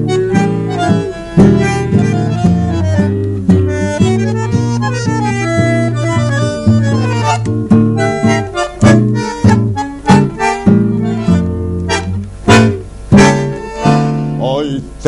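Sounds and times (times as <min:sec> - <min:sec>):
bandoneon chords: 0:00.0 - 0:15.0
guitar plucking notes: 0:00.0 - 0:15.0.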